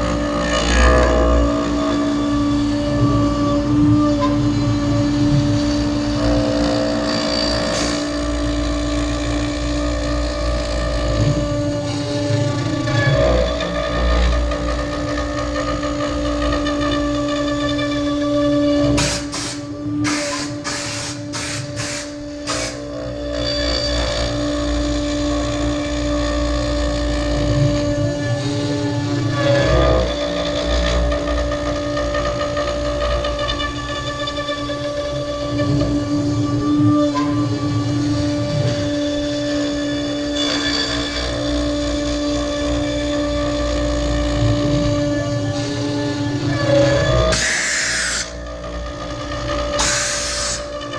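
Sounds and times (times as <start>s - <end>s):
router bit cutting wood: 0.0s - 50.9s
router spindle whine: 0.0s - 50.9s.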